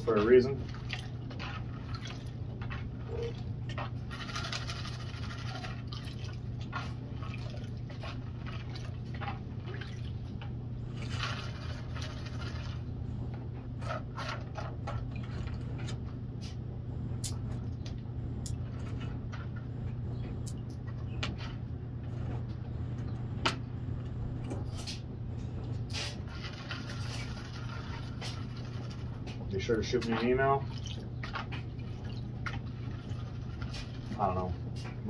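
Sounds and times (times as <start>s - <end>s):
water sloshing and splashing: 0.0s - 16.1s, 25.8s - 35.0s
steady low hum: 0.0s - 35.0s.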